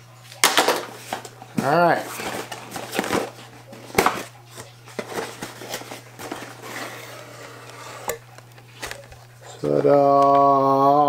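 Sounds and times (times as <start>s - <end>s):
cardboard scraping and tapping: 0.5s - 8.2s.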